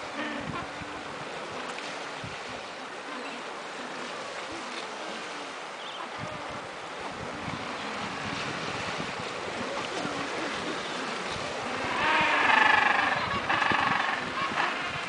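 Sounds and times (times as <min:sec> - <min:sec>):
wind on microphone: 0:00.0 - 0:15.0
waves washing on pebbles: 0:01.0 - 0:13.1
penguin braying call: 0:11.8 - 0:14.9.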